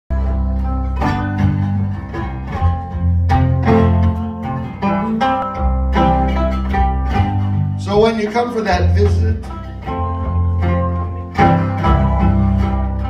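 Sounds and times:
resonator guitar blues: 0.1 - 13.0.

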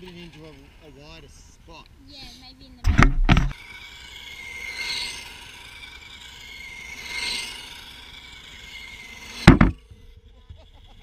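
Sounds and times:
loud short knock: 2.8 - 3.6, 9.5 - 9.8
remote-control car motor whining: 3.5 - 11.0.

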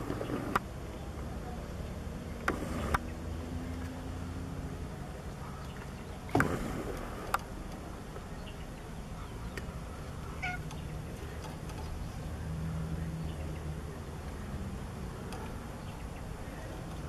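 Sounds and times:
cat meowing faintly: 10.4 - 10.6.

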